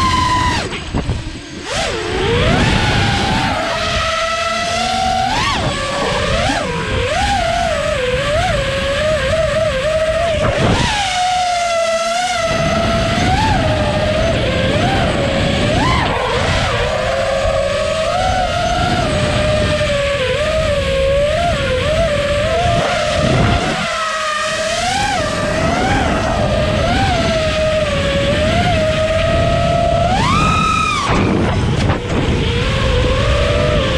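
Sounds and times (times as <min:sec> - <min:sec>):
quadcopter motors whining: 0:00.0 - 0:33.9
wind rush: 0:00.0 - 0:33.9.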